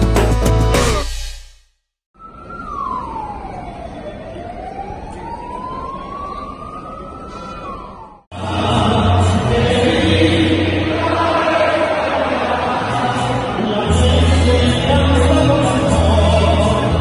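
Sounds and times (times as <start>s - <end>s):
siren wailing: 2.1s - 8.3s
street and crowd noise: 2.4s - 17.0s.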